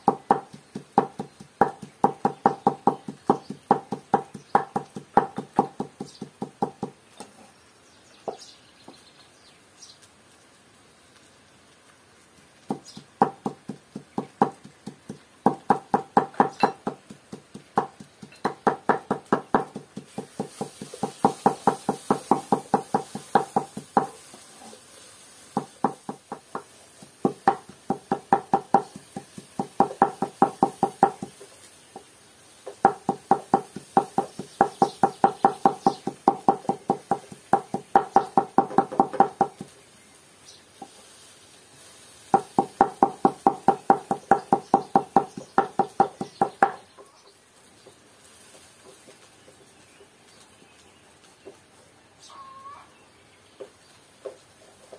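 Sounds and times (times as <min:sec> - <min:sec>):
knife chopping on wooden board: 0:00.0 - 0:07.3, 0:12.7 - 0:24.1, 0:25.6 - 0:31.4, 0:32.7 - 0:39.7, 0:42.3 - 0:46.8.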